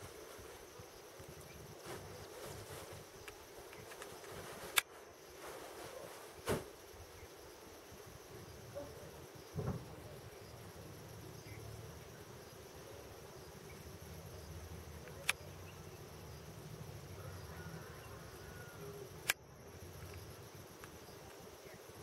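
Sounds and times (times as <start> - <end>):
faint insect chirring: 0.0 - 22.0
sharp clicks: 15.0 - 15.4.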